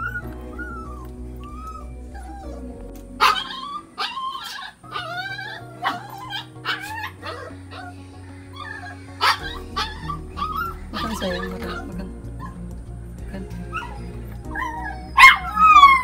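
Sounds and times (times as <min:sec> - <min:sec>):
dog whining and yelping: 0:00.0 - 0:02.6, 0:03.2 - 0:07.9, 0:08.5 - 0:12.6, 0:13.7 - 0:16.0
background music: 0:00.0 - 0:16.0.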